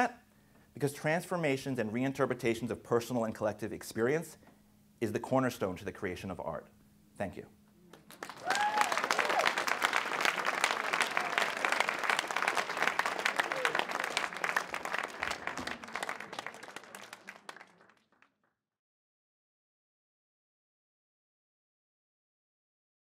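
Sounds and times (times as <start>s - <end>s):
audience applauding: 7.9s - 18.3s.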